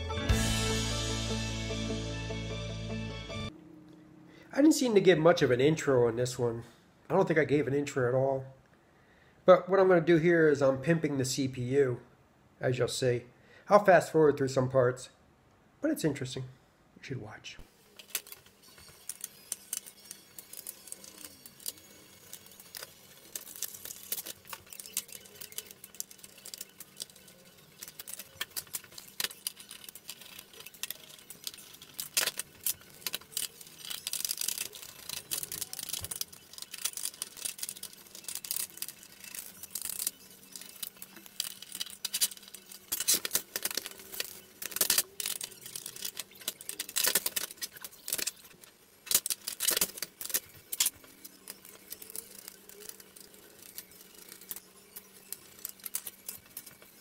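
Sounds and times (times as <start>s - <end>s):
plastic parts clicking and rattling: 17.9s - 57.0s.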